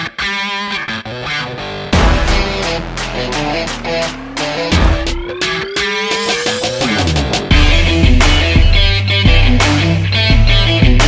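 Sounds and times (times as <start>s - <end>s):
music with steady beat: 1.9s - 11.0s
loud low hit: 2.0s - 5.6s.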